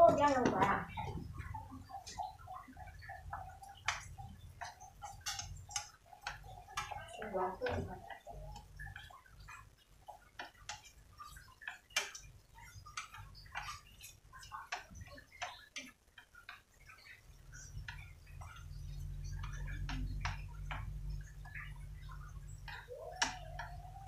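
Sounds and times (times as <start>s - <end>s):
low hum: 16.8s - 24.0s.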